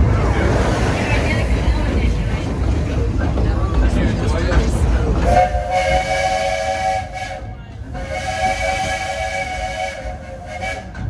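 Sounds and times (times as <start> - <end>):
train rumble: 0.0 - 11.0
steam hissing: 5.2 - 11.0
steam locomotive chime whistle: 5.3 - 11.0.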